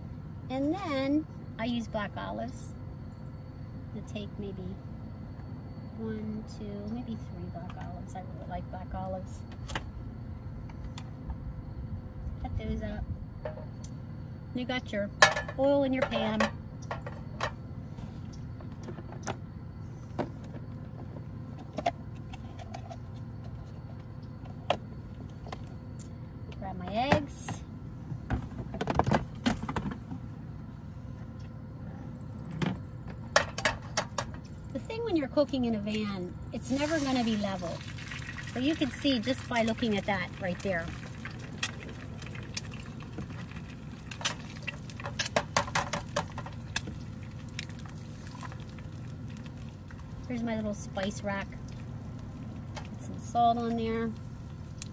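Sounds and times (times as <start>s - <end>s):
steady low rumble: 0.0s - 22.1s, 22.8s - 54.9s
egg sizzling in pan: 36.6s - 50.3s, 53.7s - 54.9s
oil popping and crackling: 36.6s - 54.9s.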